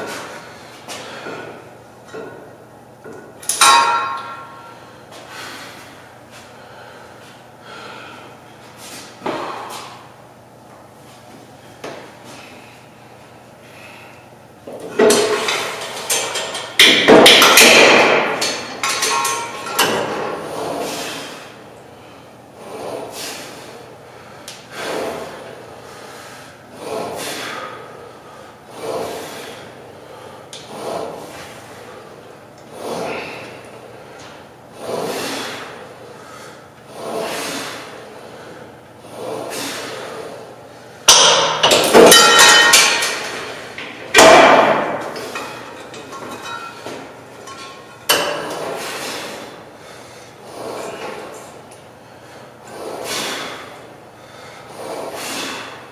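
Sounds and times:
soft weight machine strokes: 0.0s - 17.6s, 18.2s - 55.9s
weight stack clanking: 3.2s - 4.8s, 14.8s - 21.3s, 41.1s - 49.4s.

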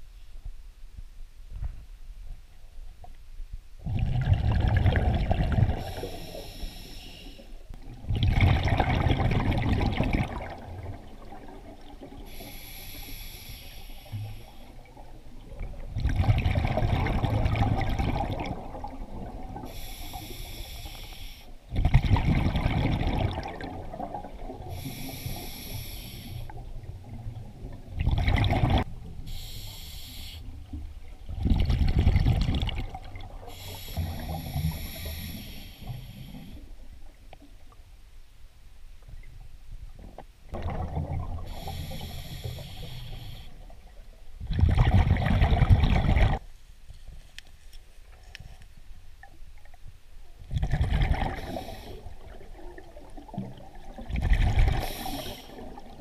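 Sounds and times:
bubbling exhale: 3.8s - 15.0s, 16.0s - 27.2s, 31.4s - 36.7s, 40.5s - 43.7s, 50.6s - 56.0s
hissing regulator inhale: 5.8s - 7.6s, 12.3s - 14.9s, 19.6s - 21.6s, 24.7s - 26.6s, 29.3s - 30.6s, 33.5s - 36.7s, 41.5s - 43.7s, 51.3s - 52.2s, 54.7s - 55.7s.

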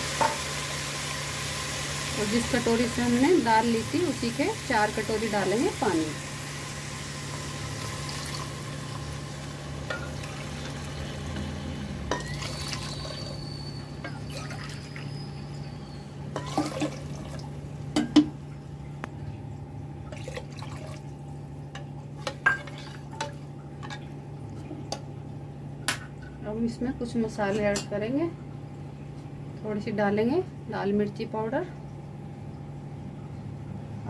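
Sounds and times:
water pouring into pot: 0.0s - 15.2s, 16.4s - 17.6s, 20.1s - 21.2s, 22.4s - 23.4s
ladle knocking against pot: 18.0s - 18.4s.

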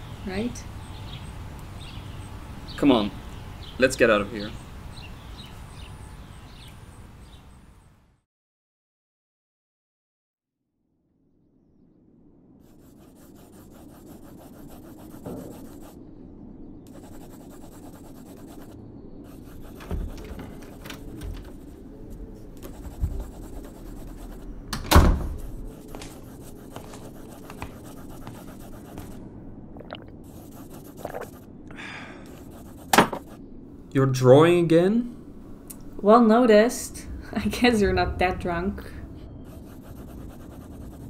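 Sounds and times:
pencil scratching on paper: 12.6s - 16.0s, 16.9s - 21.8s, 22.6s - 24.5s, 25.2s - 29.2s, 30.2s - 31.5s, 32.3s - 33.4s, 39.5s - 41.0s
knocks and thumps: 19.6s - 21.7s, 32.9s - 33.3s.

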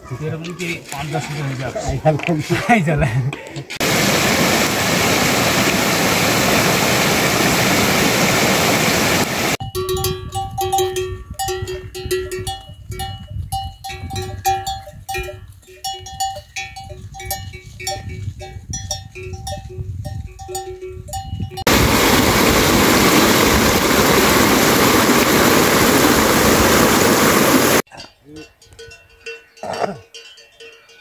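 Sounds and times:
water rushing over a bank: 3.8s - 9.6s, 21.7s - 27.8s
livestock bells clanking: 9.6s - 21.8s, 27.9s - 31.0s.

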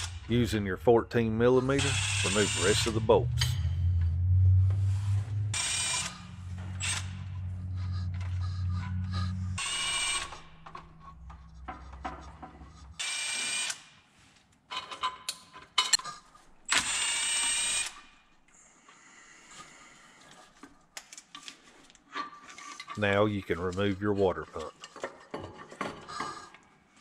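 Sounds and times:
low steady hum: 0.0s - 13.2s
power tool whirring: 1.7s - 4.1s, 4.9s - 13.9s, 16.7s - 18.1s.

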